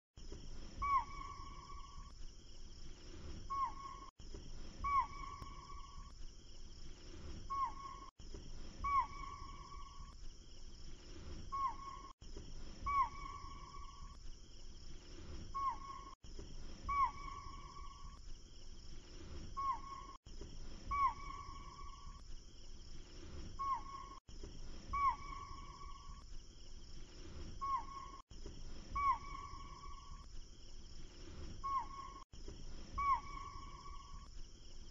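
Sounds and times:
swooping whistled call: 0:00.8 - 0:02.1, 0:03.5 - 0:04.1, 0:04.8 - 0:06.1, 0:07.5 - 0:08.1, 0:08.8 - 0:10.2, 0:11.5 - 0:12.1, 0:12.8 - 0:14.2, 0:15.6 - 0:16.2, 0:16.8 - 0:18.2, 0:19.6 - 0:20.2, 0:20.8 - 0:22.2, 0:23.6 - 0:24.2, 0:24.9 - 0:26.2, 0:27.6 - 0:28.2, 0:28.9 - 0:30.3, 0:31.6 - 0:32.2, 0:32.9 - 0:34.3.

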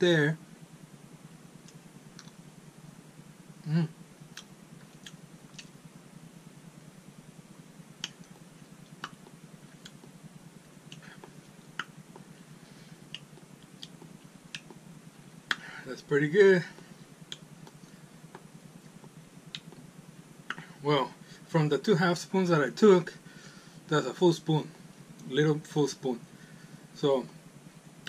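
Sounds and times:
mouth clicking and lip smacking: 0:01.6 - 0:02.4, 0:04.3 - 0:05.8, 0:08.0 - 0:12.4, 0:13.0 - 0:15.8, 0:16.8 - 0:20.8
man humming: 0:03.6 - 0:04.0.

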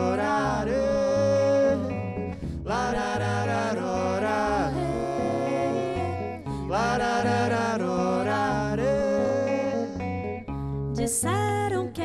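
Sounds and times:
man and woman singing together: 0:00.0 - 0:10.1
acoustic guitar: 0:00.0 - 0:12.0
bass: 0:00.0 - 0:12.0.

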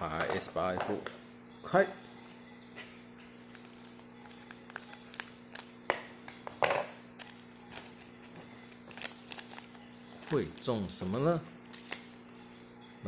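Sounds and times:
wrapper crinkle: 0:03.5 - 0:05.8, 0:07.2 - 0:12.2.

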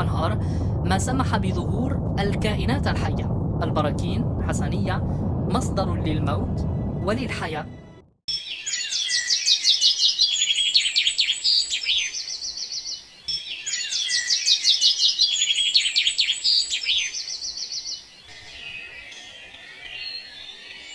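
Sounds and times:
birds chirping and trilling: 0:07.7 - 0:20.9.

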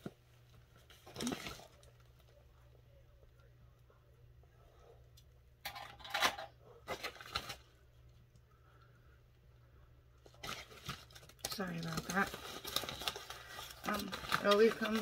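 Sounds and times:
foil mailer bag crinkling: 0:06.9 - 0:07.7, 0:10.3 - 0:15.0.

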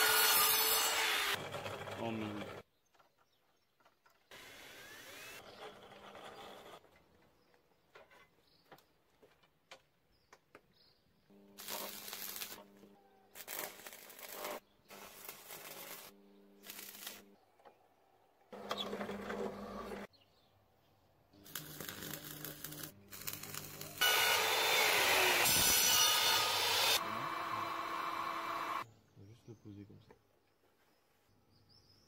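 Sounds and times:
small electric power tool: 0:00.0 - 0:02.6, 0:04.3 - 0:06.8, 0:21.4 - 0:28.9.

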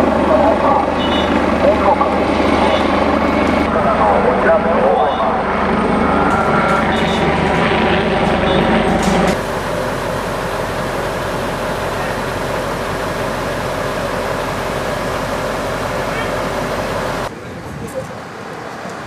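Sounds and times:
fire truck diesel engines running: 0:00.0 - 0:19.0.

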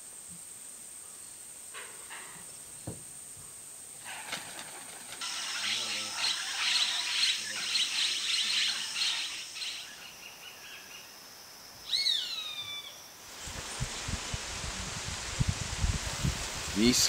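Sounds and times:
birds chattering: 0:04.0 - 0:11.1
steady rushing noise: 0:13.3 - 0:17.0.

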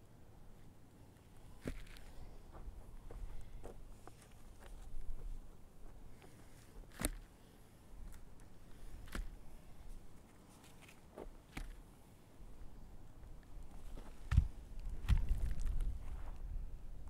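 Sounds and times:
sharp knocks of sods set down: 0:01.6 - 0:02.1, 0:06.2 - 0:07.3, 0:08.8 - 0:09.5, 0:10.6 - 0:11.8.

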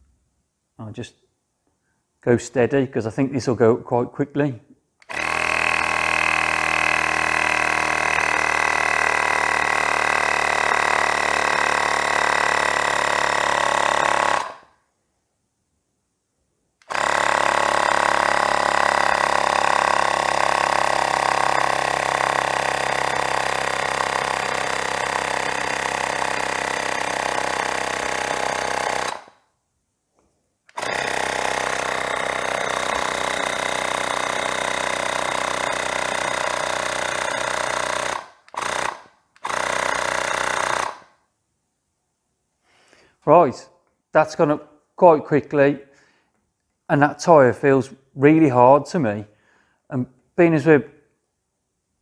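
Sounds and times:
mini air compressor running: 0:05.0 - 0:14.7, 0:16.8 - 0:29.4, 0:30.7 - 0:41.1.

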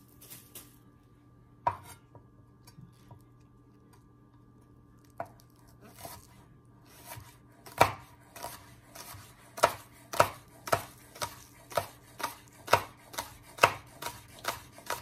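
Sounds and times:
knife chopping on wooden board: 0:05.2 - 0:06.3, 0:06.9 - 0:15.0.

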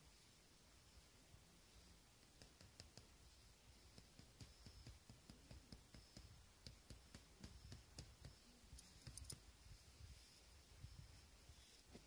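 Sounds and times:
faint clicks: 0:03.9 - 0:09.4.

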